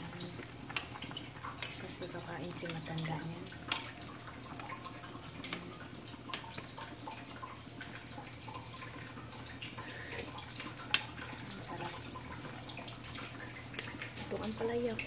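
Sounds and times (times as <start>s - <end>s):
running water wash: 0.0s - 15.0s
water dripping: 0.0s - 15.0s.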